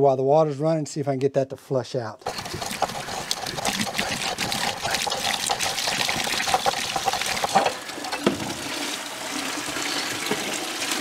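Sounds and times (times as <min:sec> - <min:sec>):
metal bar scraping in valve: 0:02.2 - 0:08.2
water gushing into plastic bucket: 0:02.2 - 0:11.0.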